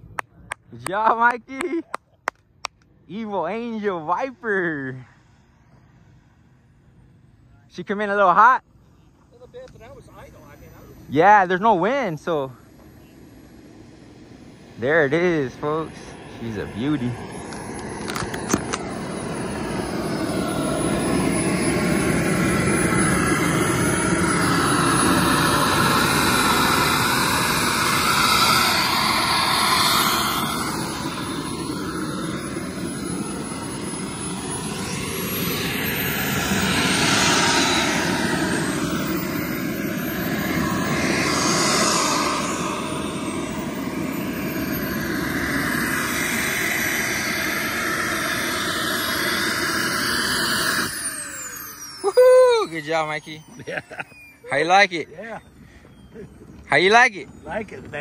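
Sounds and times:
jet turbine idling whine: 0.0s - 58.0s.

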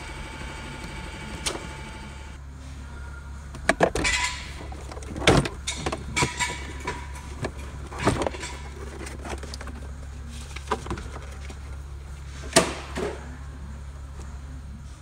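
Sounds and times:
low workshop hum: 0.0s - 15.0s.

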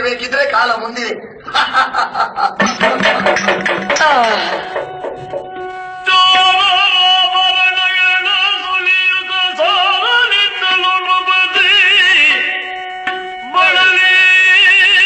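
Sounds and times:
steady drone: 2.6s - 6.1s.

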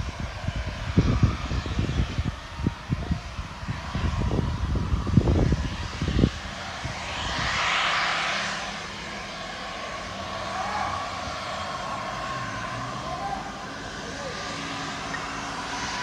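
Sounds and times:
wind buffeting microphone: 0.0s - 12.7s
jet turbine whine: 0.0s - 16.0s.

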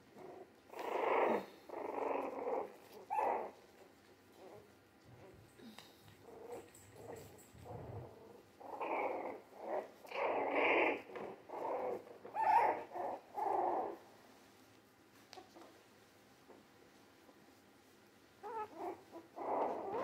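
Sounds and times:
puppies growling and whining: 0.1s - 14.0s, 18.4s - 20.0s.

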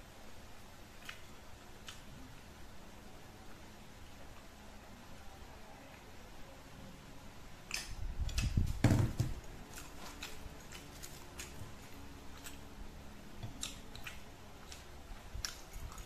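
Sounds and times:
mouth clicks and smacks: 7.7s - 8.7s, 13.4s - 16.0s
person chewing wetly: 9.6s - 16.0s.

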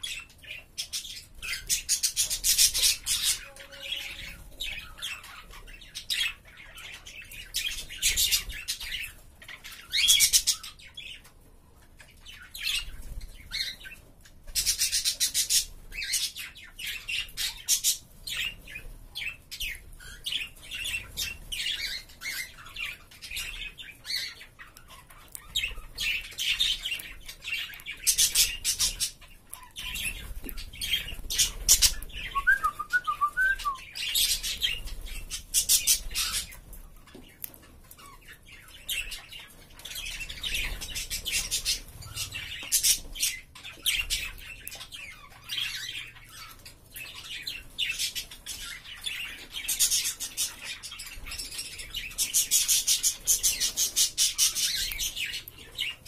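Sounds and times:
birds chattering and squawking: 0.0s - 56.0s.

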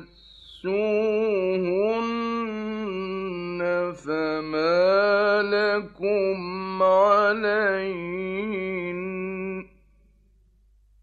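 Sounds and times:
breath: 0.1s - 0.6s.

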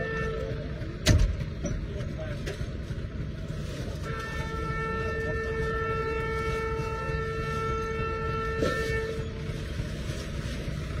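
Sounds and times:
train horn blast: 0.0s - 0.8s, 4.0s - 10.0s
moving train rumble: 0.0s - 11.0s.

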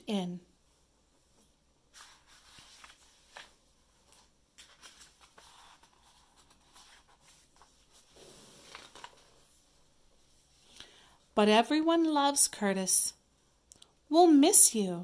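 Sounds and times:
paper rustling: 1.9s - 10.4s.

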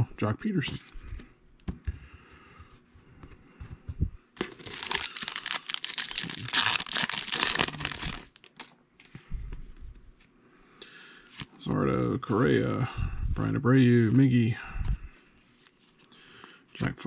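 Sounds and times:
foil wrapper tearing and crinkling: 4.4s - 8.7s.

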